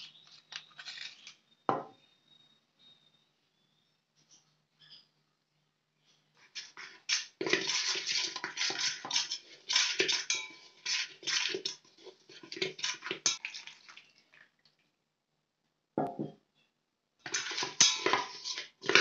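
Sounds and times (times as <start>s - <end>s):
metal utensils scraping and clinking: 0.6s - 1.4s, 6.4s - 13.4s, 17.2s - 19.0s.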